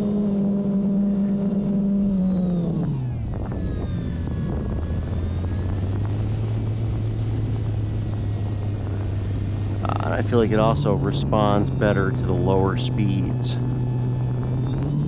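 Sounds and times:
electric motor and propeller drone: 0:00.0 - 0:15.0.

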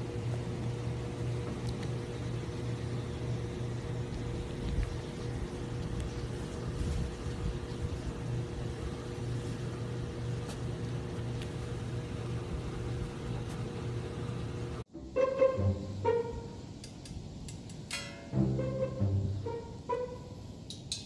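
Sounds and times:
low mechanical hum with hiss: 0:00.0 - 0:21.0
plucked string music: 0:14.9 - 0:16.6, 0:18.0 - 0:20.3.

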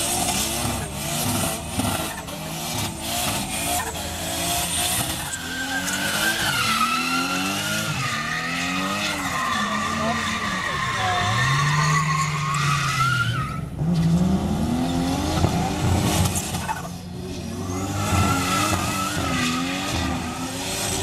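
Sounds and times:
car engine revving: 0:00.0 - 0:21.0
tyres squealing: 0:04.7 - 0:13.7.

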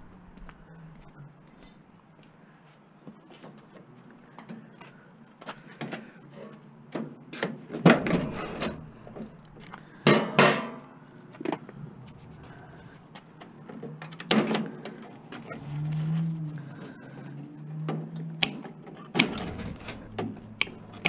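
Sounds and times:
metal clanks and rattles: 0:07.8 - 0:16.1, 0:18.7 - 0:21.0
ringing metal crash: 0:07.9 - 0:10.8, 0:19.2 - 0:21.0.

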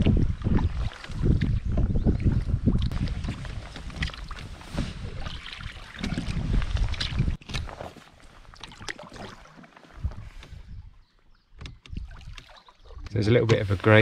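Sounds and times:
wind buffeting microphone: 0:00.0 - 0:07.7
paddle splashing in water: 0:00.0 - 0:10.9, 0:11.6 - 0:14.0
water dripping from paddle: 0:08.5 - 0:10.5, 0:11.5 - 0:13.2.

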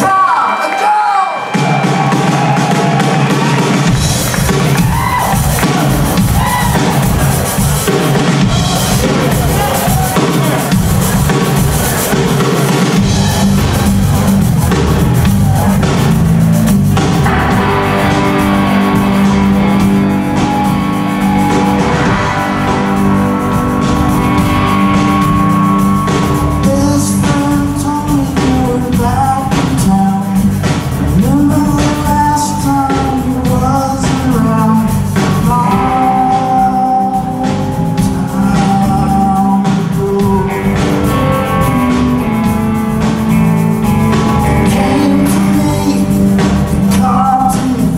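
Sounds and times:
drum kit: 0:00.0 - 0:47.9
electric guitars: 0:00.0 - 0:47.9
bass guitar: 0:01.5 - 0:47.9
man singing: 0:26.4 - 0:42.3, 0:43.9 - 0:47.9.

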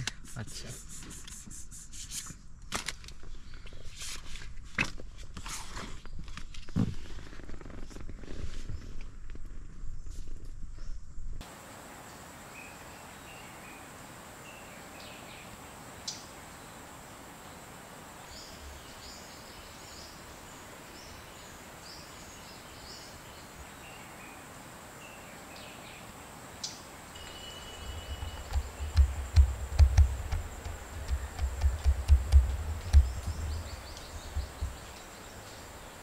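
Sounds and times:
steady hiss: 0:11.4 - 0:36.0
faint bird chirps: 0:18.2 - 0:36.0
high insect whine: 0:26.4 - 0:36.0
low rumble: 0:27.8 - 0:34.9.

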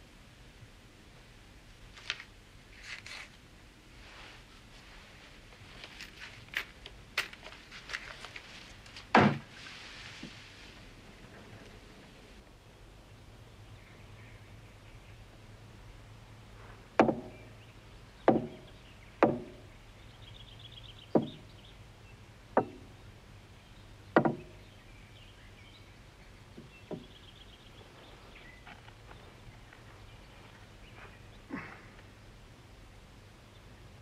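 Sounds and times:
hammer knocking on wooden tabletop: 0:18.3 - 0:18.6, 0:21.2 - 0:21.4, 0:24.2 - 0:24.5.

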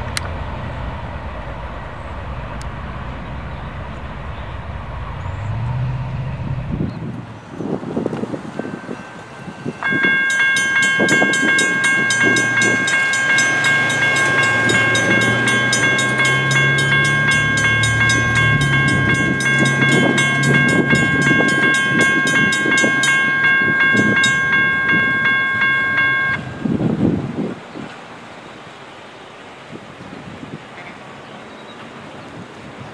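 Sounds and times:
railroad crossing warning bell: 0:07.6 - 0:27.0.

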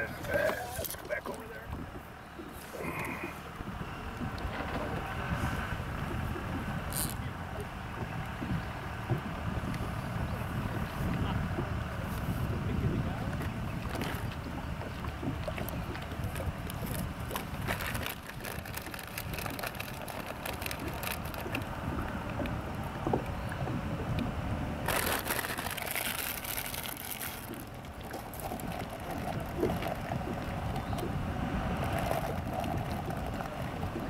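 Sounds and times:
small waves lapping against hull: 0:00.0 - 0:34.0
wind rumbling on microphone: 0:00.0 - 0:34.0.

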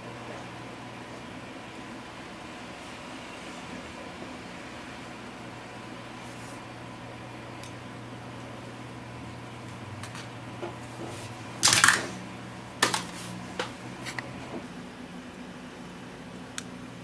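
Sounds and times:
steady low hum: 0:00.0 - 0:17.0
scraping rustle on desk: 0:06.2 - 0:06.6.

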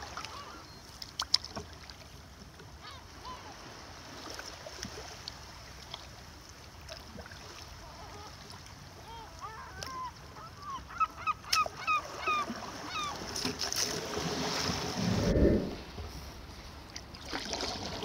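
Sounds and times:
gulls squawking: 0:09.0 - 0:13.3.

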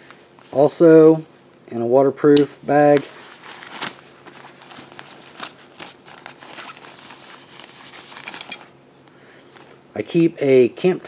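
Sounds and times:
stuff sack rustling and crinkling: 0:02.8 - 0:08.7
crisp crackles: 0:03.0 - 0:08.6.

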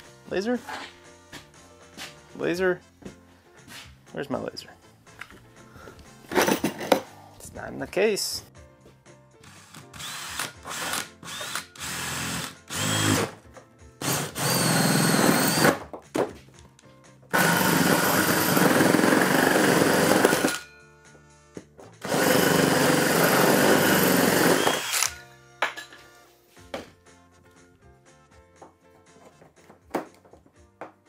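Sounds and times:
cordless drill boring through metal: 0:09.5 - 0:13.3, 0:14.0 - 0:15.8, 0:17.4 - 0:20.6, 0:22.0 - 0:25.2.

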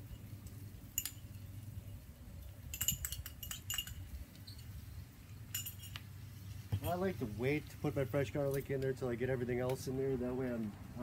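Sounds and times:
metal utensil clinking on pan: 0:02.7 - 0:04.6.

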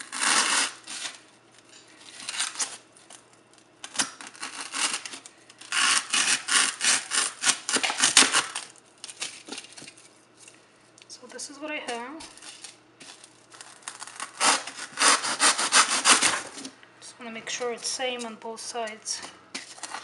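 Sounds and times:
knife sawing through styrofoam: 0:00.0 - 0:01.2, 0:04.2 - 0:08.6, 0:13.9 - 0:16.6.

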